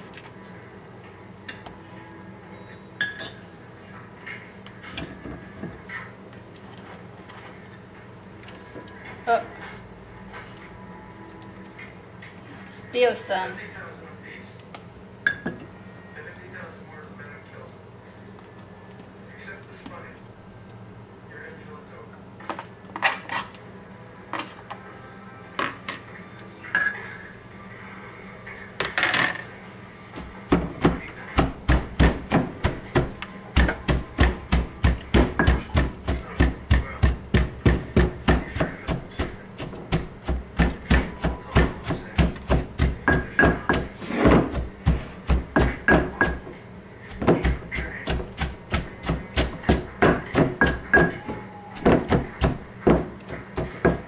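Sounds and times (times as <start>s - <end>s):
pestle pounding in mortar: 30.2s - 46.5s, 47.1s - 54.0s.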